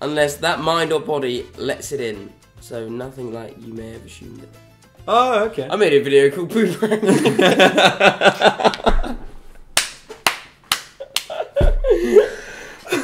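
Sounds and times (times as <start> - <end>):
men laughing: 6.6 - 9.3, 11.0 - 13.0
hand claps: 8.6 - 8.9, 9.8 - 11.8.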